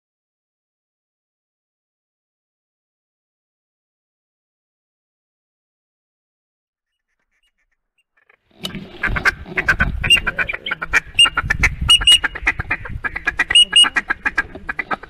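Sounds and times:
duck call feed chatter: 8.9 - 15.0.

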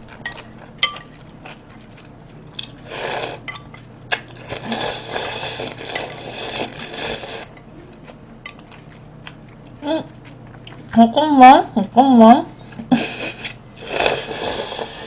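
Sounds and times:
slurping noodles: 2.8 - 3.4, 4.5 - 7.5, 13.2 - 15.0.

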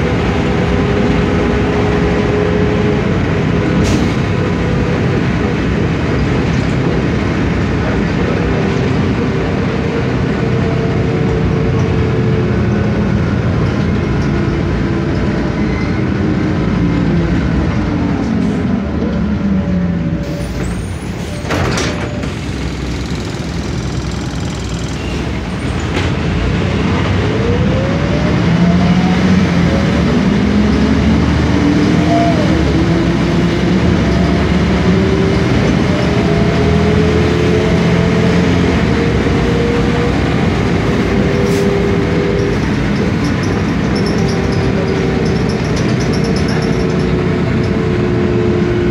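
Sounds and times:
bus diesel engine: 0.0 - 48.9
rising gearbox whine: 17.8 - 26.3, 38.8 - 48.4.

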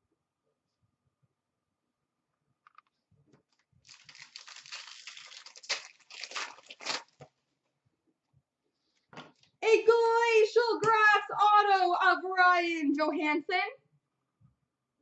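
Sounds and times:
wrapper tearing and crinkling: 3.5 - 7.3.

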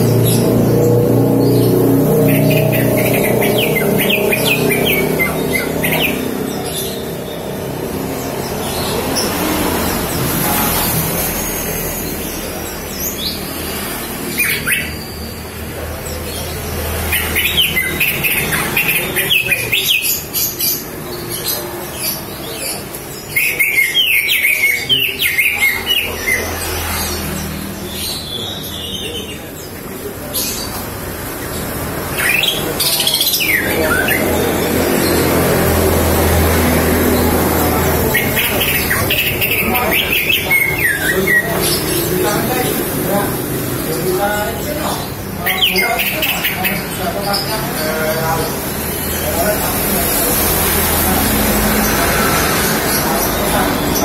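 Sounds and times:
bird chirping and whistling: 1.5 - 7.1, 14.3 - 15.5, 17.1 - 20.6, 37.9 - 42.2.

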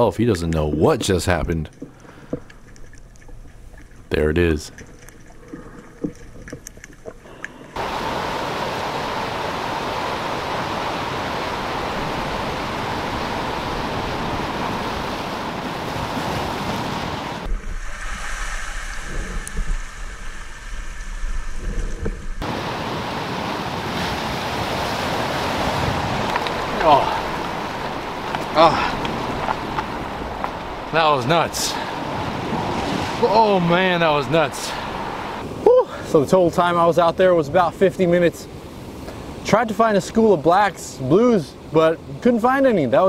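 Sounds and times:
small underwater clicks: 0.5 - 4.1, 4.7 - 7.8
surf breaking over rocks: 7.4 - 35.7
wind rumble on microphone: 7.8 - 31.0.

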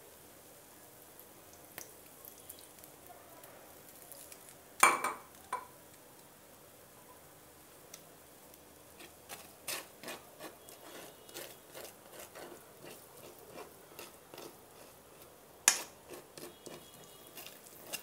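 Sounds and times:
fork scraping in frying pan: 8.9 - 18.0.

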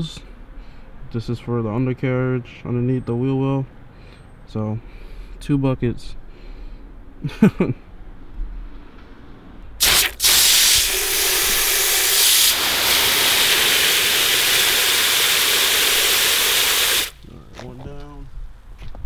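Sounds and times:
strong jet of water spraying: 9.8 - 17.2.

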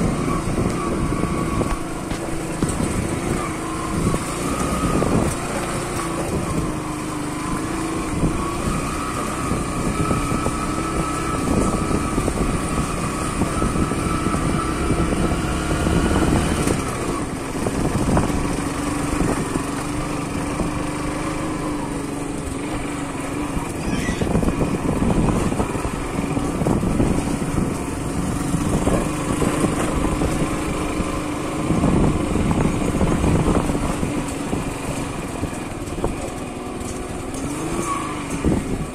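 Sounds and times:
motorcycle engine running: 0.0 - 38.9
knocks and rattles on gravel: 0.6 - 9.8.

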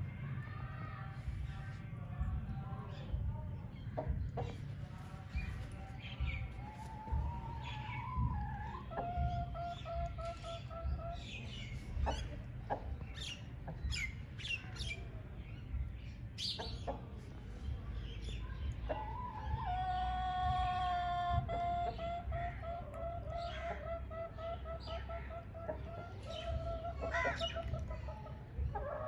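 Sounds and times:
small birds chirping: 1.2 - 20.0, 21.4 - 29.0
chicken calls: 5.4 - 14.2, 18.9 - 29.0.

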